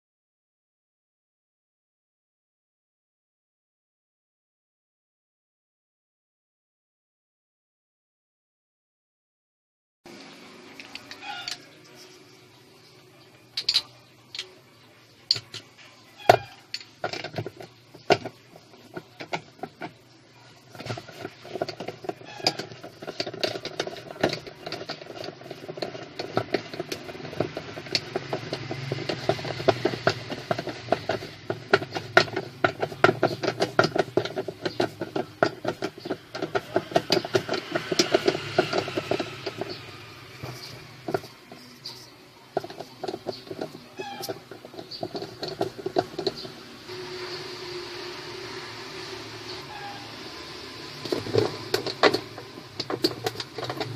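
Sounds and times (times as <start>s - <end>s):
washing machine pulsator clicking: 17.0s - 41.8s, 48.3s - 53.9s.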